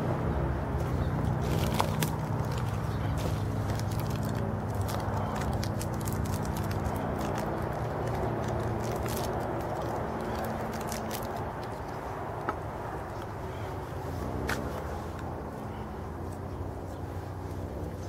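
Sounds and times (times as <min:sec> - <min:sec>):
low background rumble: 0:00.0 - 0:18.0
twigs snapping and crackling: 0:01.2 - 0:13.3.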